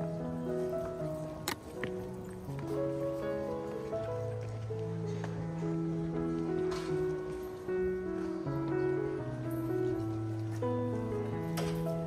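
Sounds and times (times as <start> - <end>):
music of slow sustained notes: 0.0 - 12.0.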